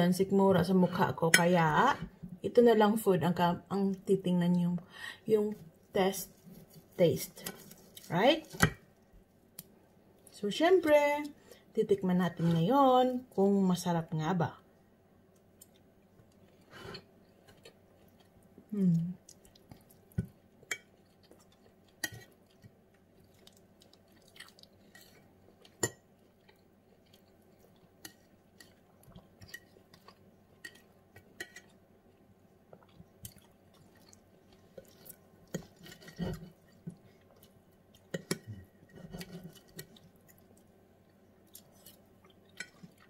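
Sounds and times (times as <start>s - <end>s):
chewing: 15.3s - 43.0s
cutlery scraping on plate: 38.1s - 39.9s.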